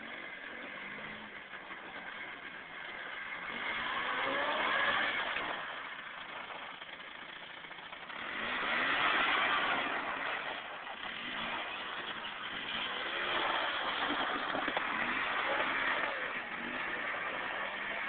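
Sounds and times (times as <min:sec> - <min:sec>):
quad engine revving: 0:00.0 - 0:18.0.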